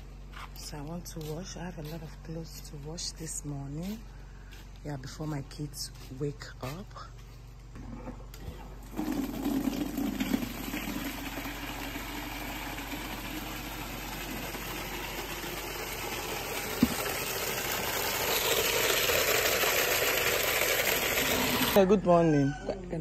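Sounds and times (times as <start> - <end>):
water gushing into plastic bucket: 8.8 - 21.8.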